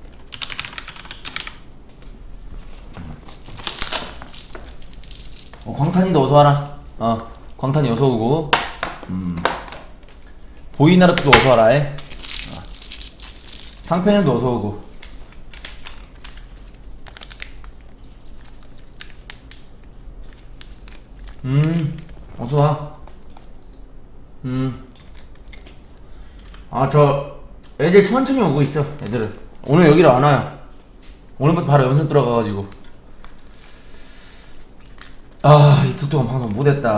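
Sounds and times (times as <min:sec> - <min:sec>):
plastic packaging crinkling: 0:03.1 - 0:06.1, 0:11.2 - 0:14.3, 0:15.0 - 0:22.2.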